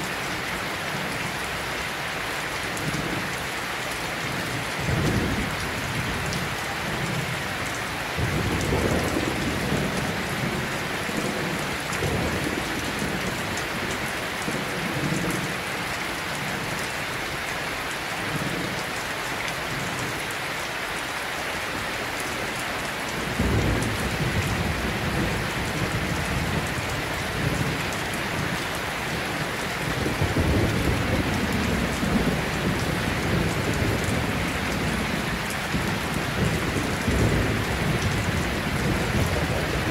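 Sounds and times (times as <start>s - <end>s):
steady rain: 0.0s - 39.9s
thunder rumbling: 23.2s - 39.9s.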